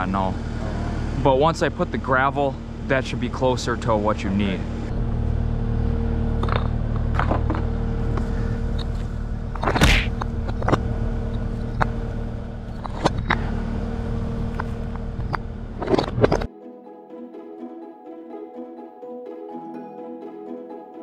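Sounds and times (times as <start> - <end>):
skid steer engine idling: 0.0 - 16.5
paver bricks knocking: 8.2 - 13.5.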